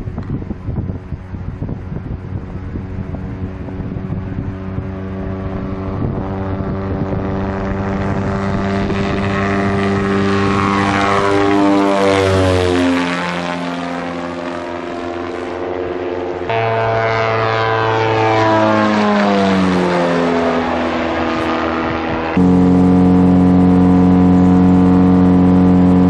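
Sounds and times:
propeller plane engine at full power: 0:00.0 - 0:26.0.

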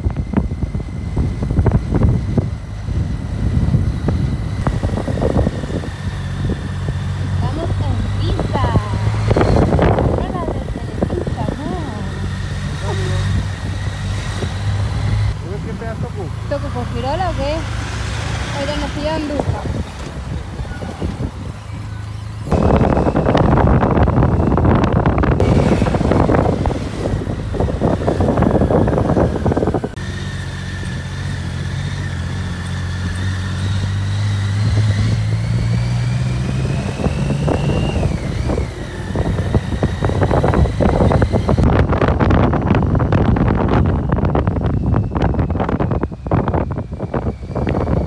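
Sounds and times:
wind buffeting microphone: 0:00.0 - 0:30.0, 0:30.8 - 0:48.0
motorcycle engine running: 0:00.0 - 0:48.0
thin whine: 0:20.5 - 0:41.8.

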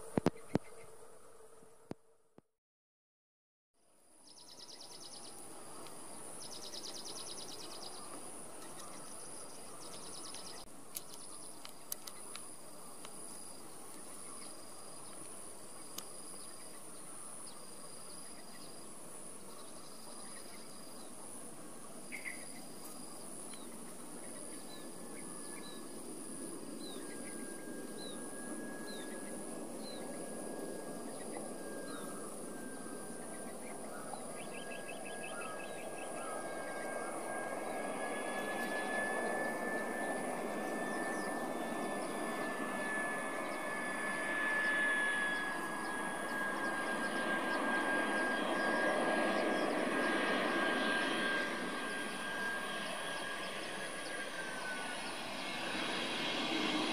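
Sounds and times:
insects droning: 0:03.9 - 0:56.9
insects trilling: 0:04.2 - 0:56.9
faint clicks: 0:09.8 - 0:13.2.

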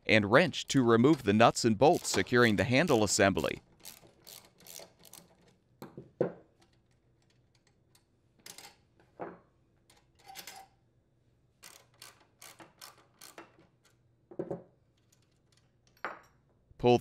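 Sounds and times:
socket wrench clicking: 0:11.6 - 0:13.6.

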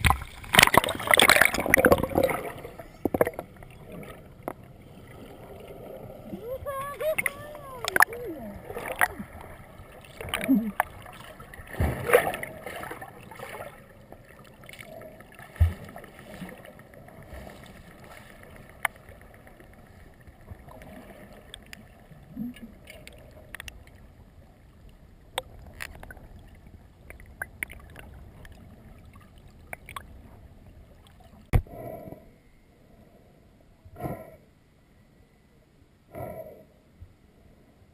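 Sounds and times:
sharp clicks underwater: 0:00.0 - 0:04.7, 0:06.9 - 0:12.5, 0:18.8 - 0:19.2, 0:22.6 - 0:24.0, 0:25.3 - 0:28.6, 0:29.6 - 0:30.2
muffled underwater water rush: 0:00.0 - 0:33.2.

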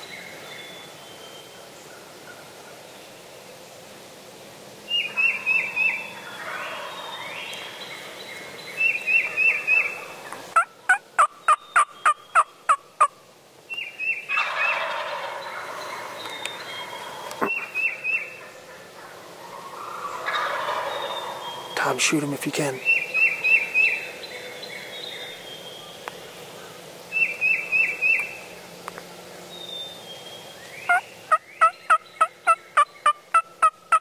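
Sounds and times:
turkeys gobbling: 0:04.9 - 0:08.2, 0:08.8 - 0:13.2, 0:14.2 - 0:24.0, 0:30.9 - 0:34.0
sharp turkey yelps: 0:10.6 - 0:13.1, 0:14.3 - 0:16.1, 0:17.4 - 0:21.4, 0:31.6 - 0:34.0.

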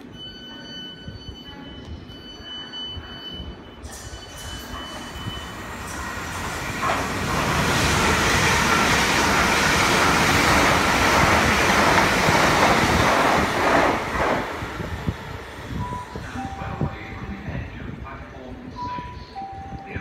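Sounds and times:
electric train passing: 0:03.8 - 0:17.9.

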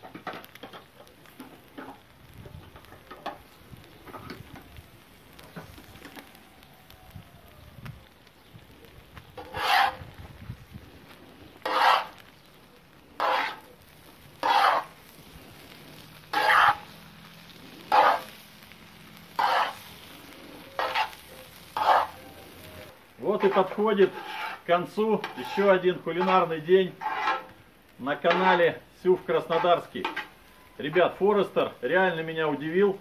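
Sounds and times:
sizzling scrape of tongs on pan: 0:09.4 - 0:10.2, 0:11.5 - 0:12.4, 0:13.2 - 0:31.0.

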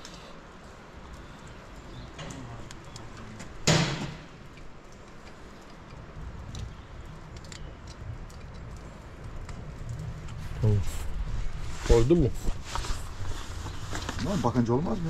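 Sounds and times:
faint clicks and handling noises: 0:00.0 - 0:11.6.

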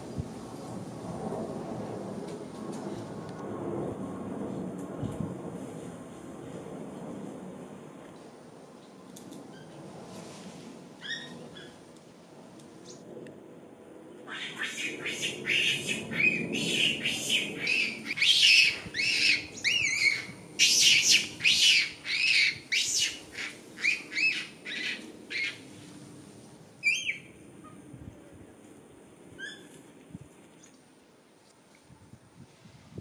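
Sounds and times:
monkeys screaming: 0:14.3 - 0:25.6.

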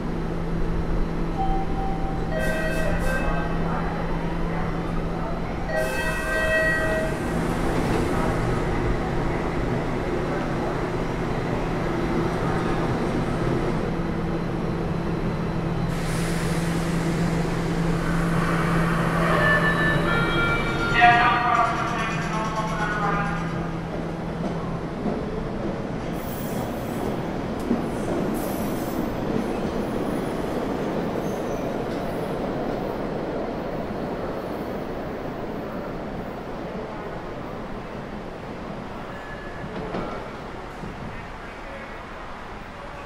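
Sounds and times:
subway train motor humming: 0:00.0 - 0:26.4.

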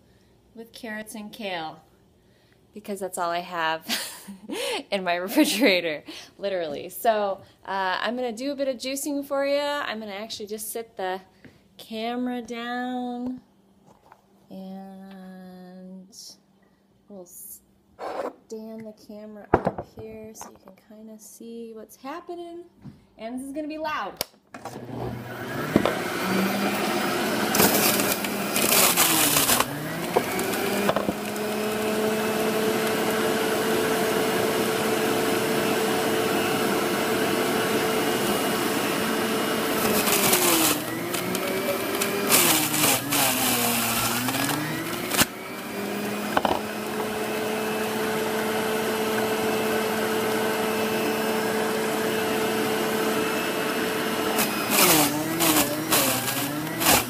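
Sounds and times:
juicer motor running: 0:24.6 - 0:57.0
vegetables grinding in juicer: 0:24.6 - 0:57.0.

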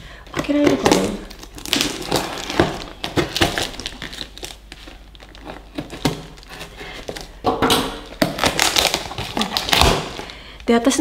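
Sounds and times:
plastic crinkling: 0:00.2 - 0:11.0.

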